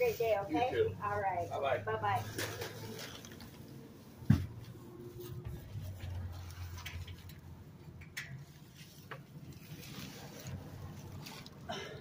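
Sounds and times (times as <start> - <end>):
dull thump: 4.2 - 4.6.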